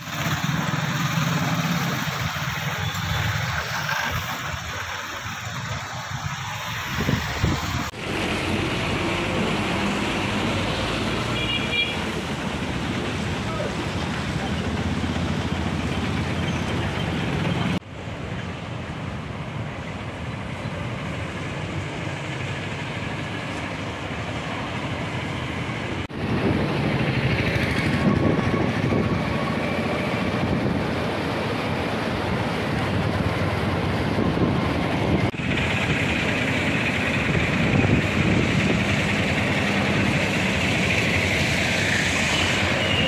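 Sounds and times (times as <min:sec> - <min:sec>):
traffic noise: 0:00.0 - 0:43.0
wind on microphone: 0:06.1 - 0:07.9, 0:26.1 - 0:31.4.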